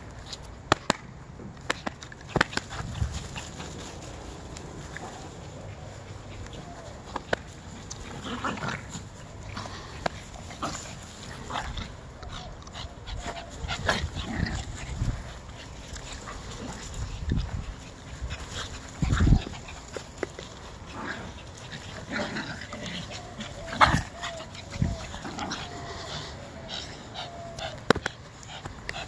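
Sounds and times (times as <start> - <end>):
puppies play-fighting: 1.6 - 29.0.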